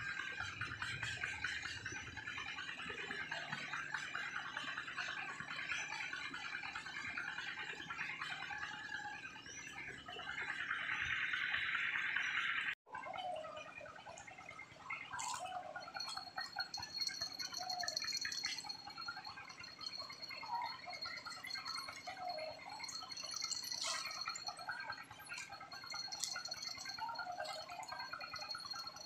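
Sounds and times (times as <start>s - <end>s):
river water gurgling and plinking: 0.0s - 29.0s.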